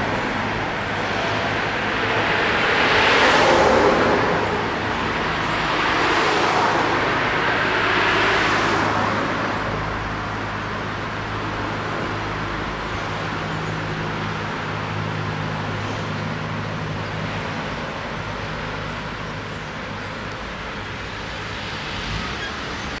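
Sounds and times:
lorry engine drone: 0.0s - 23.0s
traffic noise: 0.0s - 23.0s
car driving past: 1.0s - 9.5s.

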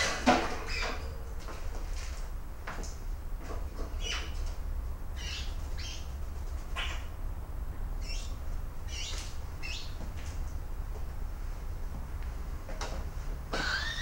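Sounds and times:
young magpie begging calls: 6.7s - 7.2s.

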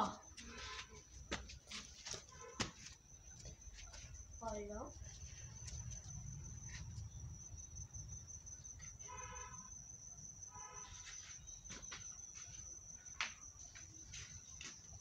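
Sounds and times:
high-pitched insect drone: 2.8s - 14.6s.

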